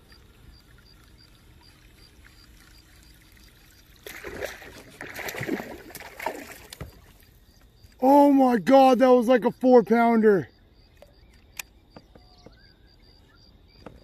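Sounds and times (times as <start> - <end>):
fish splashing and thrashing water: 0.0 - 8.0.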